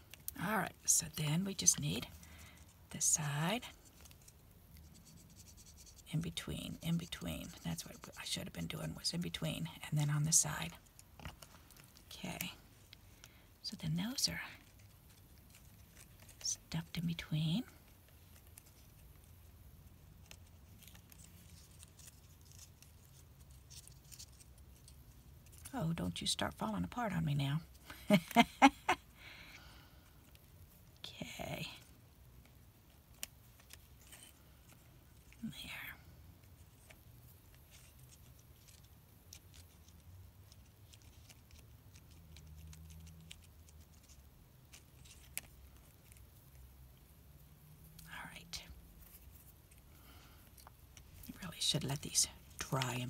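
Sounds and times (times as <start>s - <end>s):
low steady hum: 0.0s - 53.0s
paper ticks and rustles: 19.9s - 25.7s, 36.4s - 46.6s.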